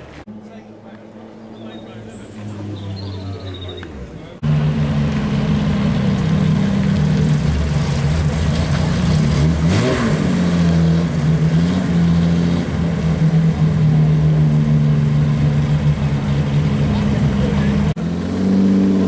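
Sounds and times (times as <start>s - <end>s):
car engine idling: 3.6s - 9.8s, 12.6s - 18.0s.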